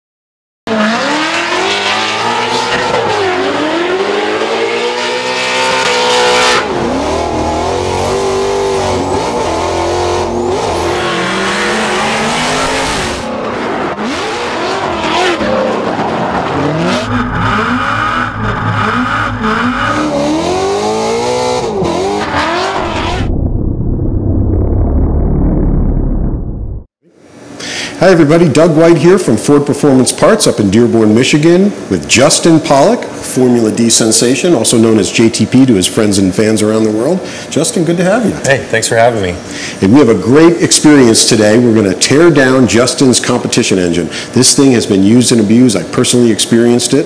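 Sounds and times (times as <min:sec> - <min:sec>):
car engines revving: 0:00.7 - 0:23.3.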